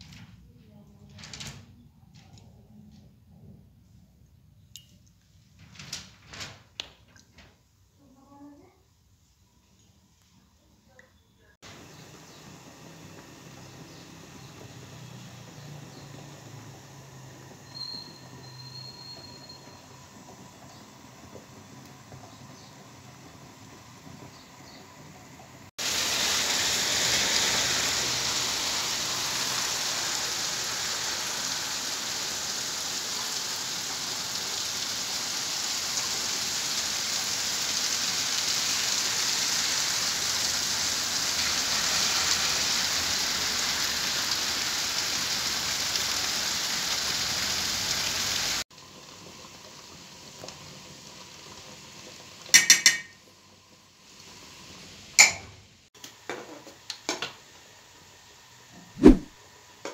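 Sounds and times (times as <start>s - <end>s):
steady rain hiss: 11.6s - 52.6s
metal cookware clinks: 52.6s - 53.2s, 55.2s - 55.5s.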